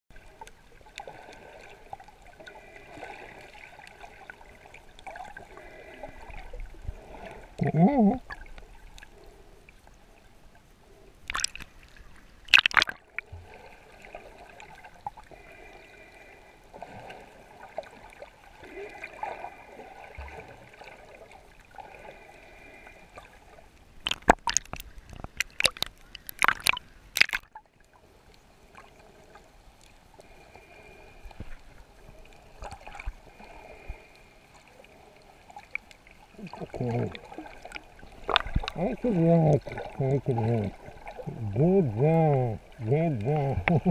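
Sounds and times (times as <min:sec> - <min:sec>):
underwater wash of water: 0:00.1 - 0:10.5, 0:11.2 - 0:27.6, 0:28.6 - 0:43.9
sharp splashing bursts: 0:12.5 - 0:13.2.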